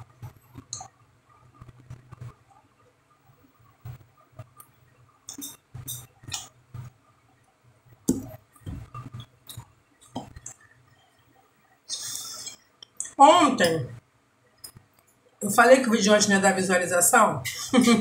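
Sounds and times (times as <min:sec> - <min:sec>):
soft clicks and taps: 0:08.0 - 0:10.7.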